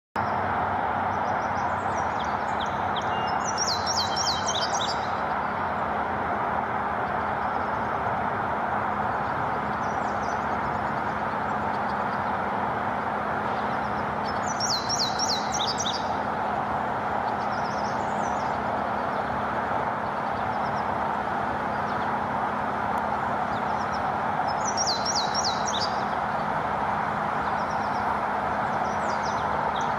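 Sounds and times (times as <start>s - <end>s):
steady rushing background noise: 0.2s - 29.9s
bird singing high sharp notes: 14.2s - 16.1s.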